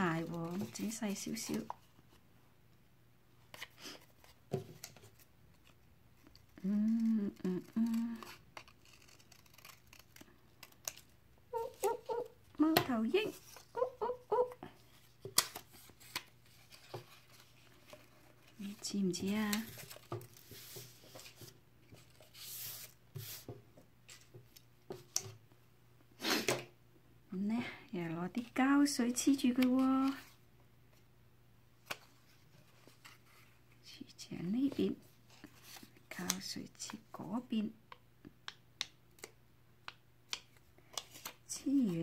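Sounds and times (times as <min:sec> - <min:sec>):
woman's voice: 0:00.0 - 0:01.7, 0:06.6 - 0:08.3, 0:11.6 - 0:14.6, 0:18.6 - 0:19.7, 0:27.3 - 0:30.3, 0:33.9 - 0:35.0, 0:36.1 - 0:37.8, 0:41.5 - 0:42.0
scissors snipping paper: 0:06.6 - 0:11.0.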